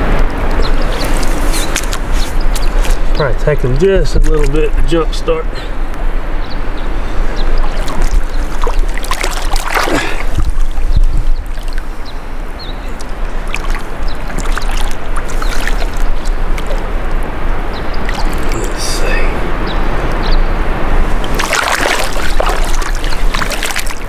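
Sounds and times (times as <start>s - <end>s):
river water sloshing and trickling: 0.0s - 4.7s, 6.0s - 24.0s
fish splashing in water: 7.6s - 19.0s, 21.0s - 24.0s.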